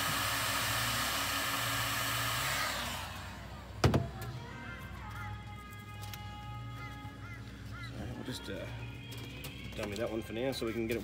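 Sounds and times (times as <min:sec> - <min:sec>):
heat gun blowing: 0:00.0 - 0:03.7.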